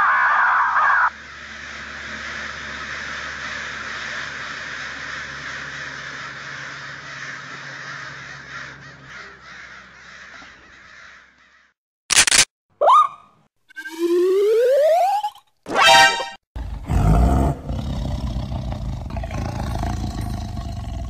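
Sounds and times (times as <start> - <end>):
flock of crows cawing: 0.1 - 11.8.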